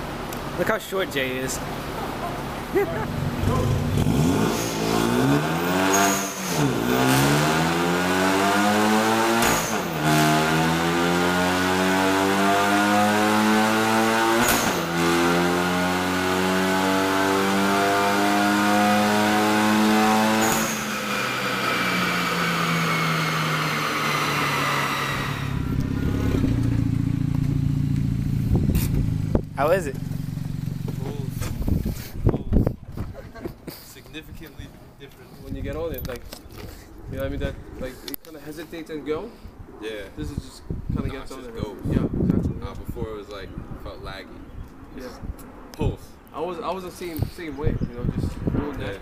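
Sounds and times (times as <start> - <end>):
car engine revving: 1.3 - 32.0.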